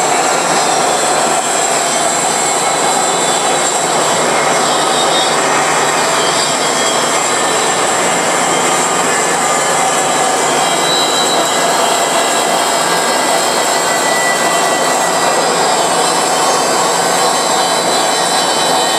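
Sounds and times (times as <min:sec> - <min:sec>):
bandsaw cutting metal: 0:00.0 - 0:18.9
thin high whine: 0:00.0 - 0:18.9.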